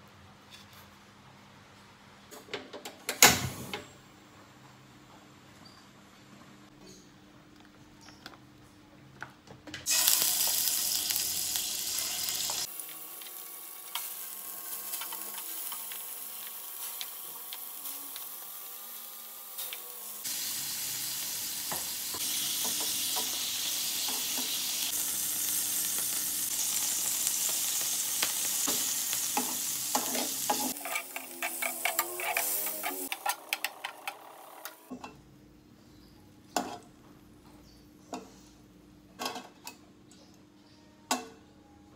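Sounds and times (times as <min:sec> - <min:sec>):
shrimp sizzling in hot oil: 0:09.9 - 0:33.1.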